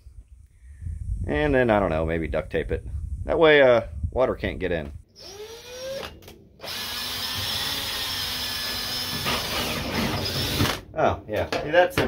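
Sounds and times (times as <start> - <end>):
drill with hole saw cutting plastic: 5.2 - 10.8.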